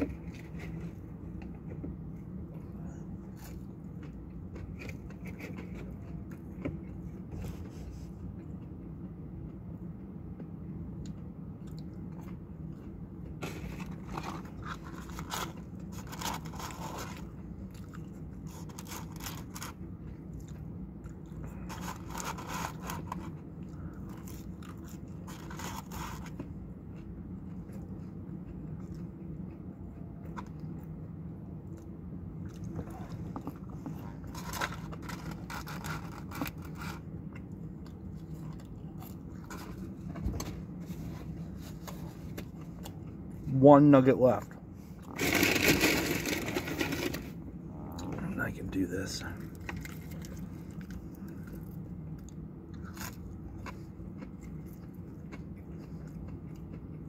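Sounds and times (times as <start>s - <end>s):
person chewing crunchy food: 0.0s - 43.5s, 49.3s - 57.0s
steady low hum: 0.0s - 57.0s
paper packaging rustling: 45.2s - 47.3s.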